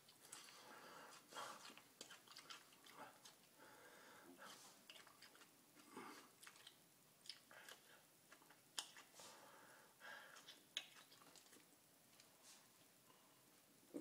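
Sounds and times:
person chewing garlic: 0.0 - 3.5, 4.8 - 9.1, 10.3 - 11.7.

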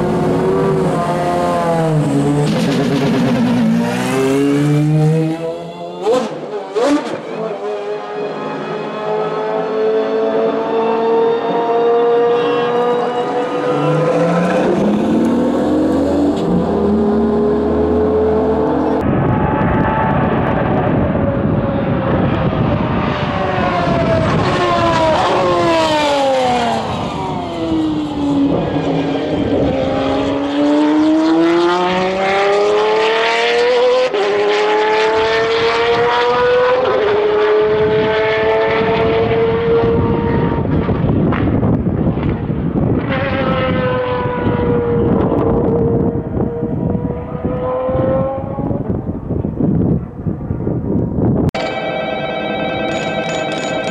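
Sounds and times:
sports car engine revving: 0.0 - 7.2.

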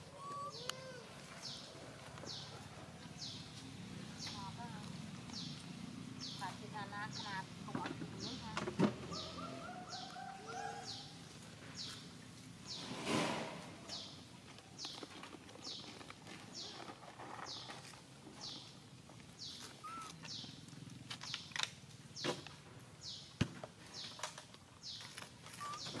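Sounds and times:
bird chirping: 0.1 - 7.4, 8.1 - 11.2, 13.9 - 18.8, 19.4 - 20.6, 24.8 - 26.0.

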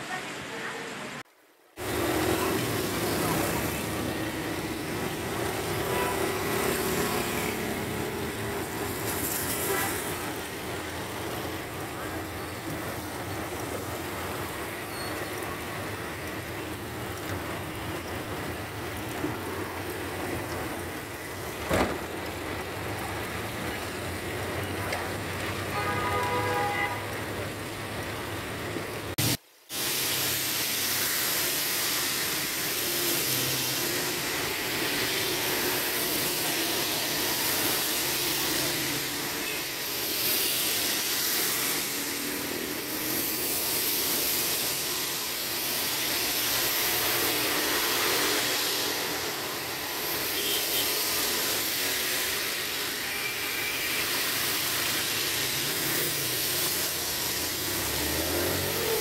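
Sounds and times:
heavy rain and tyres on wet road: 0.0 - 59.0
vehicle horn: 5.8 - 6.4, 25.7 - 27.2, 50.4 - 50.9.

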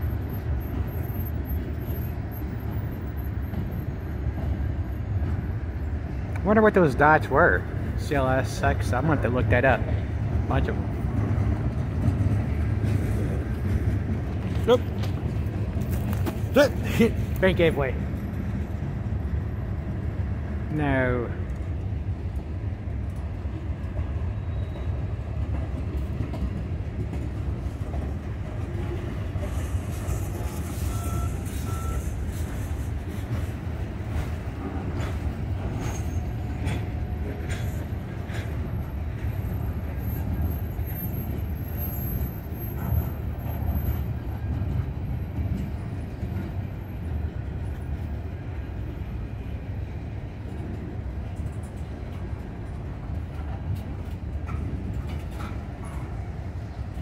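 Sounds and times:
train cars clanking: 0.0 - 20.6, 21.2 - 57.0
steel wheels rumbling on rail: 0.0 - 57.0
high-pitched wheel squeal: 29.5 - 32.8, 35.8 - 38.0.

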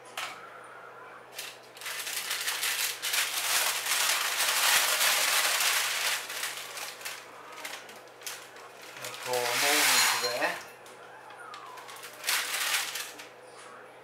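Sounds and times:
acorns rattling and clattering: 1.4 - 10.6, 11.8 - 13.3.

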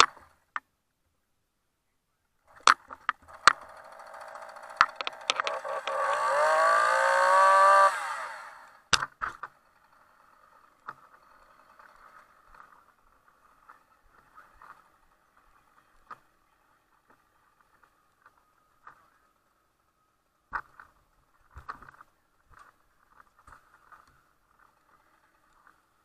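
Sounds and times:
chainsaw starter clicks: 2.5 - 12.8
chainsaw engine revving: 2.5 - 15.1.

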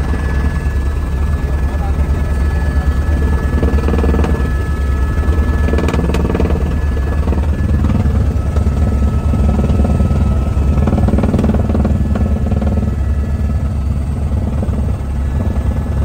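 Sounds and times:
helicopter rotor beating: 0.0 - 16.0
thin high turbine whine: 0.0 - 16.0.

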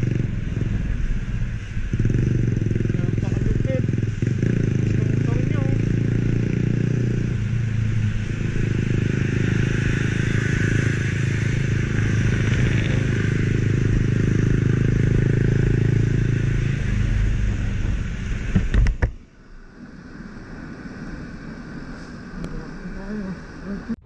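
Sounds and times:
motorcycle engine running: 0.0 - 19.2
wind and road noise: 0.0 - 24.0
sharp knocks: 18.5 - 19.2.

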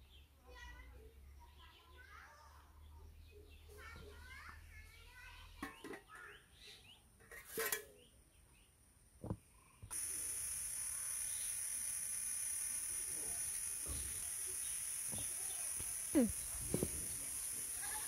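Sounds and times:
high-pitched insect drone: 9.9 - 18.0.

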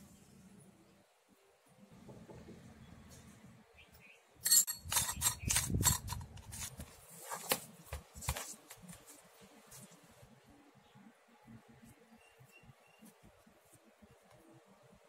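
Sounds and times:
metal clinking: 4.4 - 6.3.

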